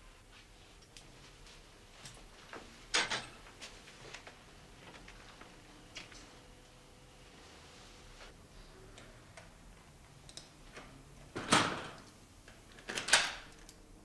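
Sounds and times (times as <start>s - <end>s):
faint clicks and ticks: 10.1s - 10.9s.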